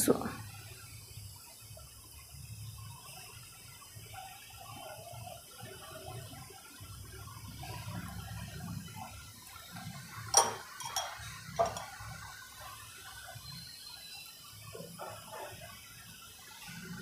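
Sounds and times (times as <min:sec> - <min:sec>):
spoon clinking against plate: 0:10.3 - 0:12.1.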